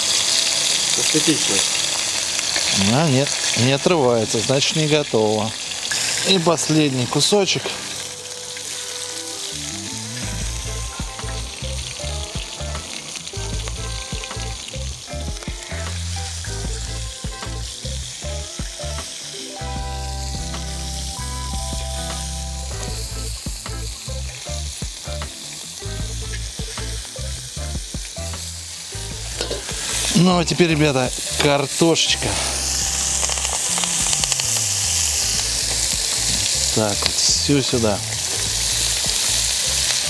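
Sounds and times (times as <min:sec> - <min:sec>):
meat sizzling in oil: 0:00.0 - 0:40.0
metal tongs clinking: 0:29.4 - 0:29.8.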